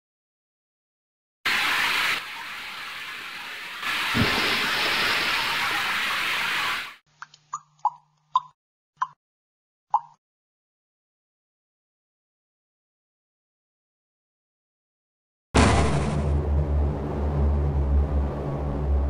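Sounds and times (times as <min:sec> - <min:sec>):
loud steady hiss: 0:01.5 - 0:07.0
drip-like plops: 0:10.0 - 0:10.2.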